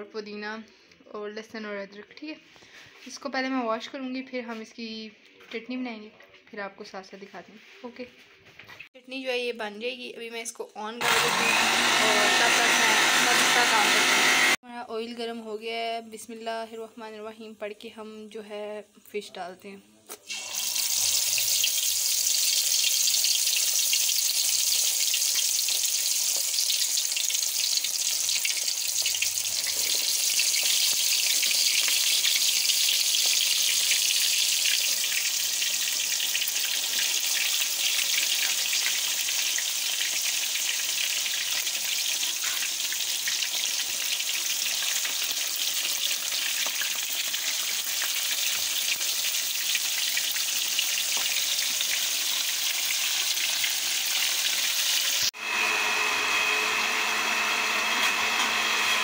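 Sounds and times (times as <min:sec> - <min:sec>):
fish deep-frying in hot oil: 0:20.2 - 0:55.5.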